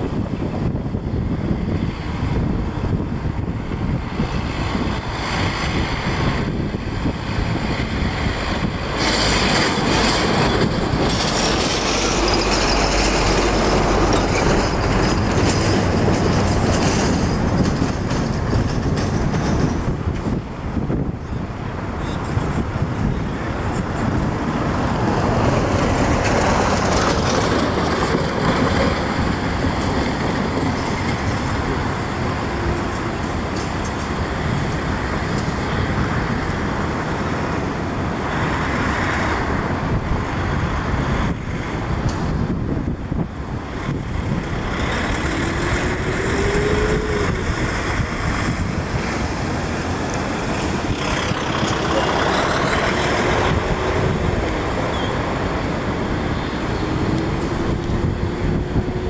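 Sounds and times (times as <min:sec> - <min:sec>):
road traffic passing: 0:00.0 - 0:59.0.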